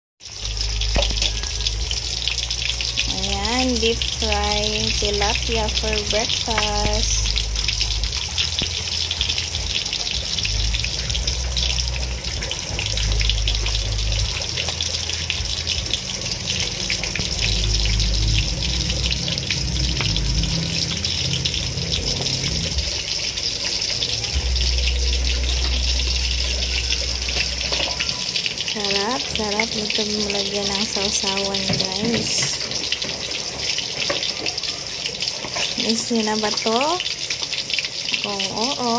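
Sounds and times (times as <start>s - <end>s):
fish deep-frying in oil: 0.2s - 38.9s
low rumble: 0.4s - 28.7s.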